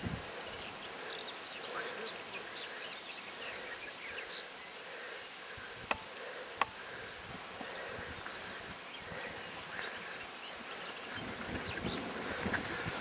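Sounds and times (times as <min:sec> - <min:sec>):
sharp click: 0:05.9 - 0:06.8.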